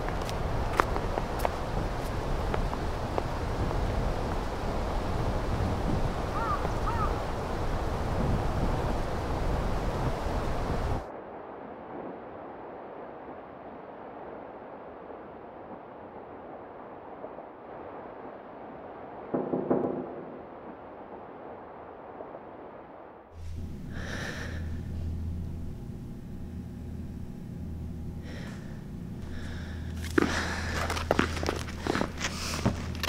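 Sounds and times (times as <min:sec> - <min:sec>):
low steady hum: 0:00.0 - 0:15.6, 0:20.6 - 0:33.0
wind noise: 0:00.0 - 0:33.0
voiced breath: 0:23.4 - 0:25.1, 0:28.2 - 0:32.8
heavy breathing: 0:23.4 - 0:25.2, 0:28.2 - 0:33.0.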